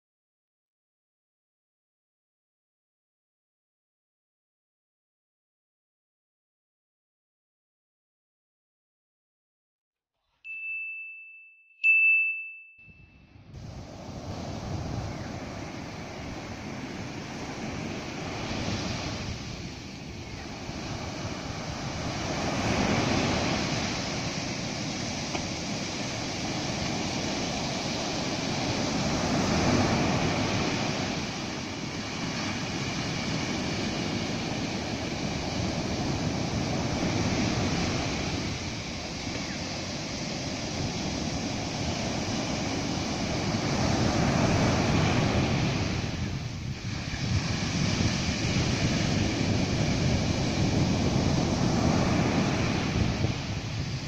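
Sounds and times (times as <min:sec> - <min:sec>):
ocean surf breaking on beach: 0:13.4 - 0:54.0.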